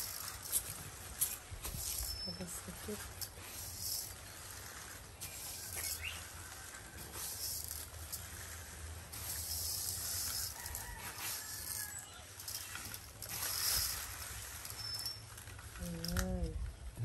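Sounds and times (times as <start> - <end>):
leaves rustling and crinkling: 0.0 - 16.9
bird chirp: 5.8 - 6.3.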